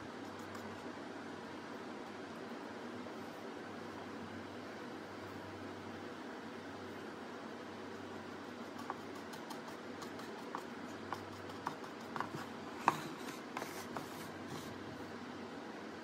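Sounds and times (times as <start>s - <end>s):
low hum and hiss: 0.0s - 16.0s
paintbrush tapping on plastic: 8.7s - 14.7s.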